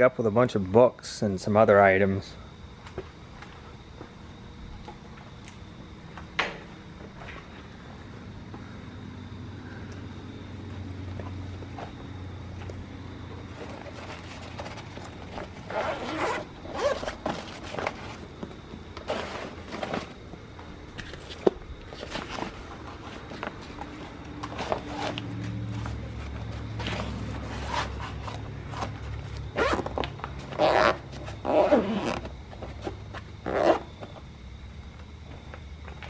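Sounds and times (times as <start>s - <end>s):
low steady hum: 0.0s - 36.0s
zippers opening and closing: 13.8s - 17.3s, 26.8s - 28.3s, 29.5s - 29.9s, 30.5s - 32.3s.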